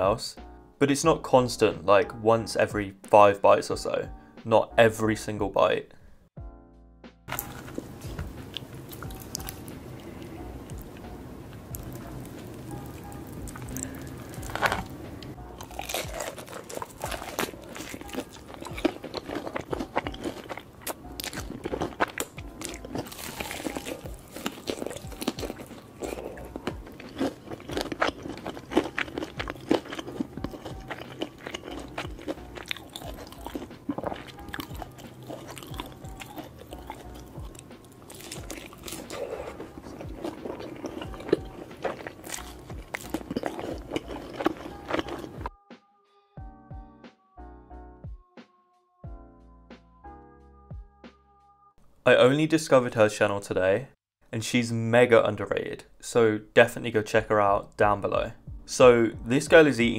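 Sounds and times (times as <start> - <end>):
crunchy chewing of fried food: 7.3 - 45.5.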